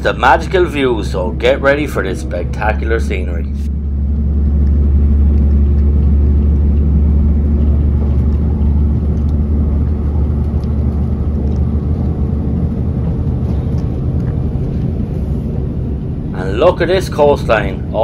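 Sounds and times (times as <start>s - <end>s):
train rumbling inside carriage: 0.0s - 18.0s.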